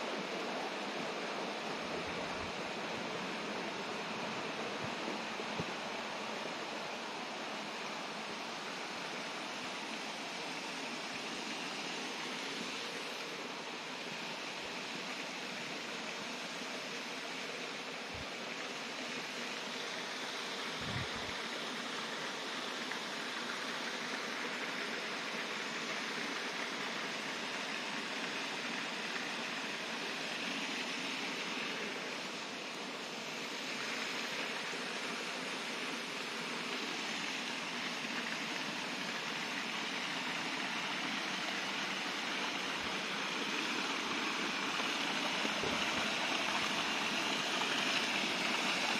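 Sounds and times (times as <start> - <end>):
stream rushing: 0.0 - 48.9.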